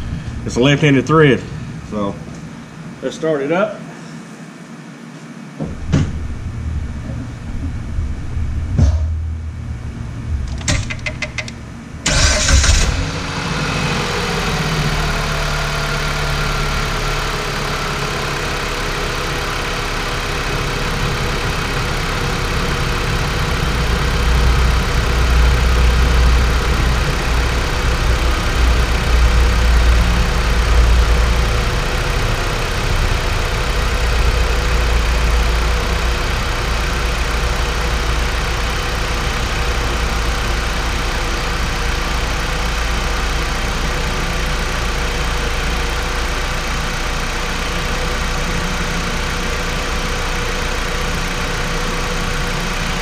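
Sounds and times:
car engine starting and idling: 5.8s - 53.0s
starter clicks: 10.5s - 12.5s.

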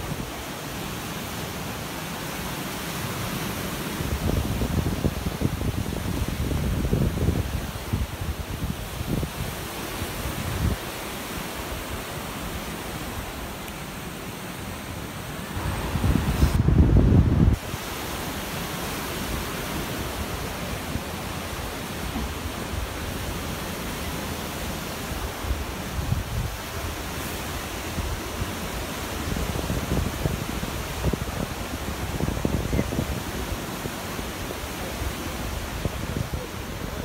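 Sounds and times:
sea surf breaking: 0.0s - 37.0s
wind buffeting microphone: 3.8s - 11.0s, 15.4s - 18.0s, 25.0s - 37.0s.

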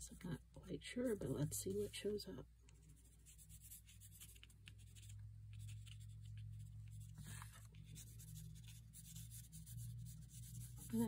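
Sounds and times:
pencil scratching on paper: 2.9s - 11.0s.

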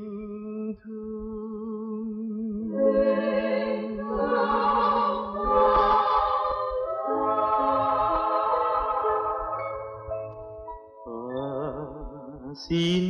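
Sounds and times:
person singing long note: 11.1s - 13.0s.

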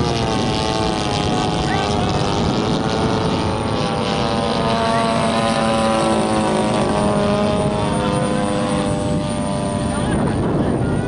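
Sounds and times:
model plane engines flying over: 0.0s - 11.0s.

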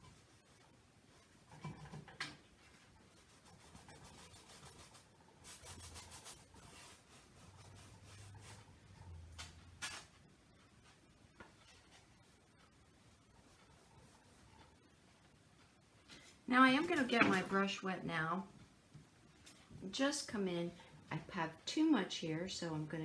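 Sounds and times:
brush scratching on canvas: 0.0s - 1.8s, 2.6s - 9.2s, 11.6s - 14.8s.

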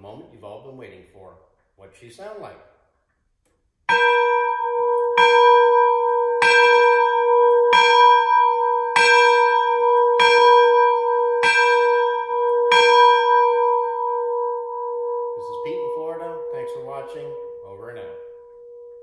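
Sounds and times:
large brass bell ringing: 3.9s - 19.0s.

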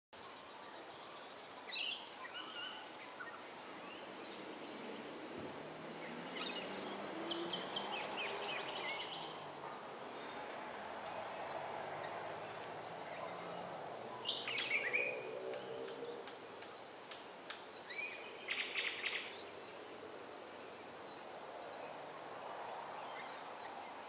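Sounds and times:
steady background hiss: 0.2s - 24.0s
bird chirping: 0.6s - 4.9s, 6.0s - 9.4s, 11.2s - 19.8s.

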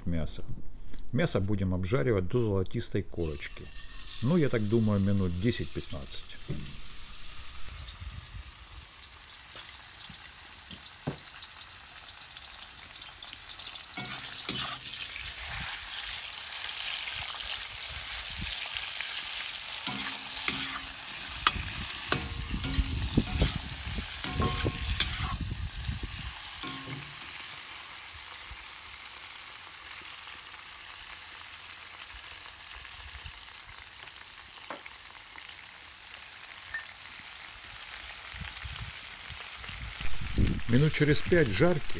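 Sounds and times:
meat sizzling in hot oil: 3.3s - 41.9s
metal skimmer scraping pot: 3.4s - 4.5s, 14.0s - 15.0s, 19.9s - 25.4s.

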